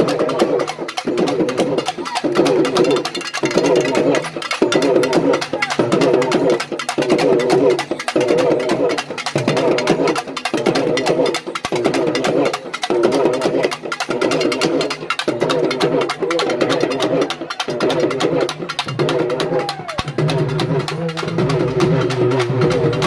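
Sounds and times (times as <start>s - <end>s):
fast drum strokes: 0.0s - 23.0s
wavering drum tone: 0.0s - 23.0s.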